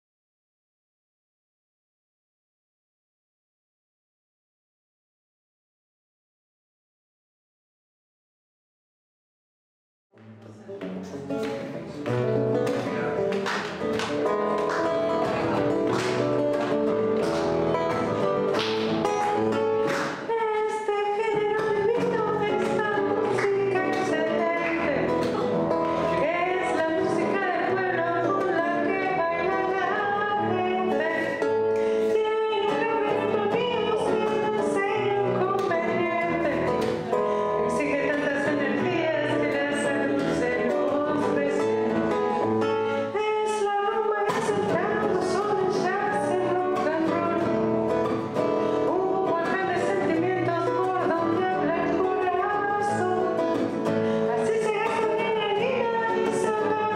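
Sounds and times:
strummed acoustic guitar: 10.2s - 56.9s
woman singing: 20.1s - 56.9s.

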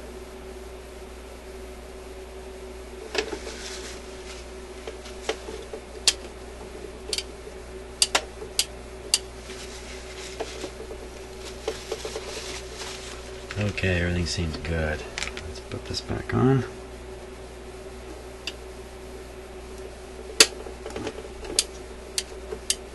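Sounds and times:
steady low hum: 0.0s - 22.9s
tissue rustling: 3.3s - 5.6s, 9.4s - 13.8s.

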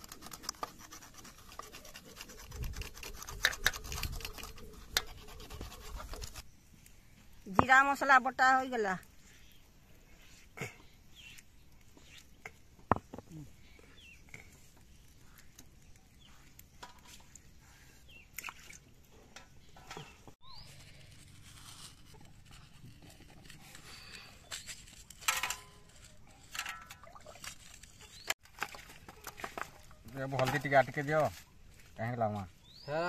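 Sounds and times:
scraping on stone slab: 0.0s - 6.4s.

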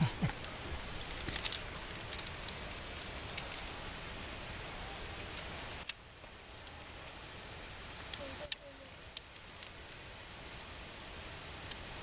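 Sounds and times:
steady rushing noise: 0.0s - 12.0s
metal climbing gear clinking: 1.0s - 3.7s.

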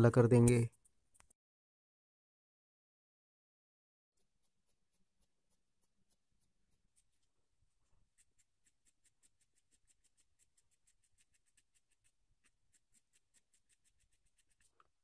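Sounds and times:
pencil scratching on paper: 4.2s - 15.0s.

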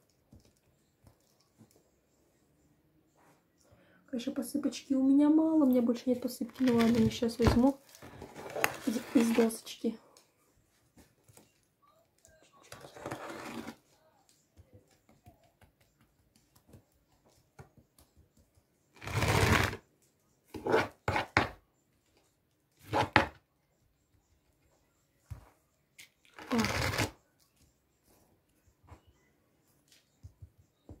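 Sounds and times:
hands scraping cake crumbs: 26.3s - 27.2s.

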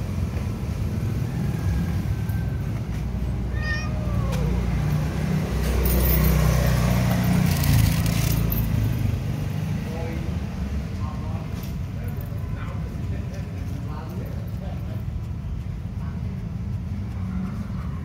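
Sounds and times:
street traffic rumble: 0.0s - 18.0s
cat meowing: 3.4s - 4.7s.

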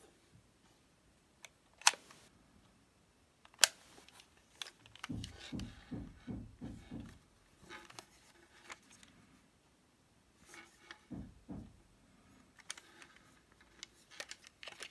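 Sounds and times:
camera plastic clicks: 1.4s - 2.2s, 3.4s - 5.2s, 12.6s - 14.9s
camera handling knocks and rubbing: 3.6s - 9.0s, 10.4s - 11.8s.

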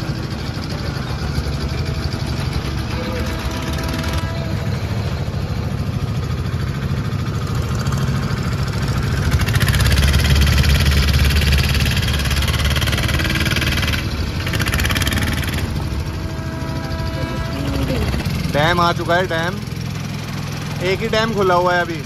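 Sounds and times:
motorboat engine humming: 0.0s - 22.0s.

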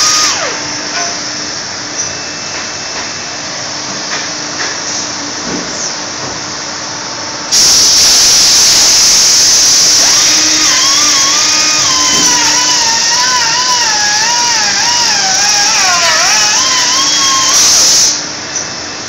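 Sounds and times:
machine high-pitched hiss: 7.5s - 18.3s.

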